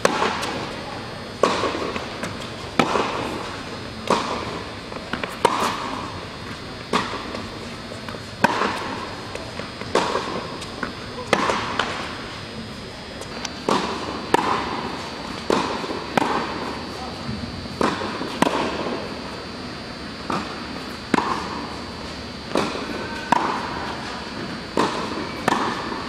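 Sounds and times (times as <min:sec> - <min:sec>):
tennis ball hit by racquets: 0:00.0 - 0:00.8, 0:01.4 - 0:12.3, 0:13.5 - 0:16.8, 0:17.7 - 0:19.1, 0:20.2 - 0:21.8, 0:22.5 - 0:26.0
tennis ball bouncing on hard court: 0:04.0 - 0:07.5, 0:20.3 - 0:21.6, 0:24.8 - 0:26.0.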